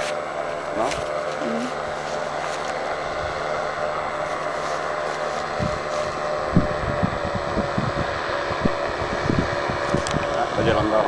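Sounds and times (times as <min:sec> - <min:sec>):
paramotor engine running: 0:00.0 - 0:11.0
wind buffeting microphone: 0:04.9 - 0:11.0.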